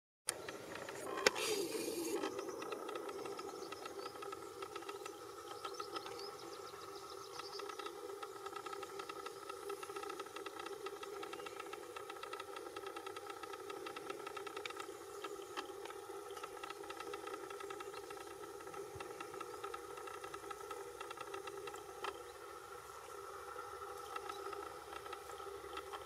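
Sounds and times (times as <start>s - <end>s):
short hiss: 1.2s - 2.2s.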